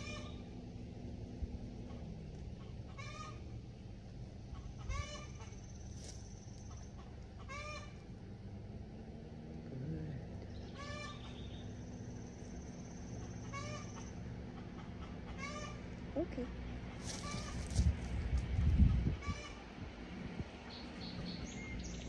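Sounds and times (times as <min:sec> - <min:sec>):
steady low hum: 0:00.0 - 0:22.0
chicken calling: 0:02.6 - 0:03.5, 0:04.5 - 0:05.6, 0:06.7 - 0:08.0, 0:10.7 - 0:11.5, 0:13.2 - 0:16.0.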